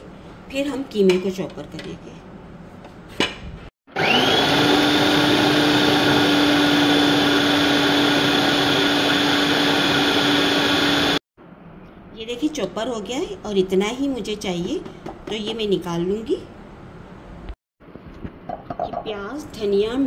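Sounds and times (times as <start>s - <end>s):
food processor motor whine: 3.9s - 11.2s.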